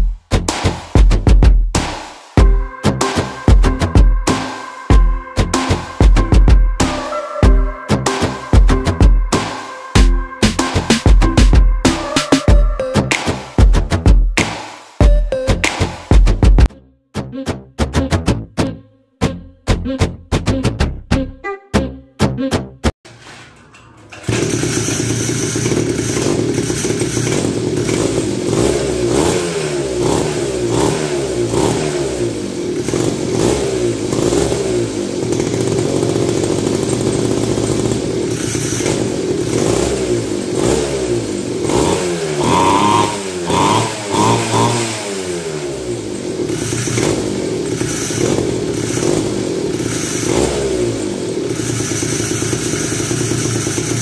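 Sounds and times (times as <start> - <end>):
sharp throttle blips: 24.0 - 54.0
atv engine revving: 24.1 - 54.0.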